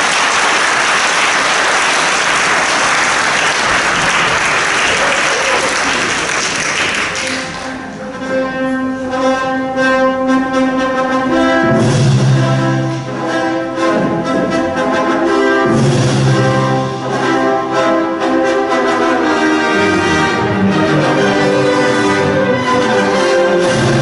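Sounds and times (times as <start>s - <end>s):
applause: 0.0s - 7.8s
orchestral string chords: 7.0s - 24.0s.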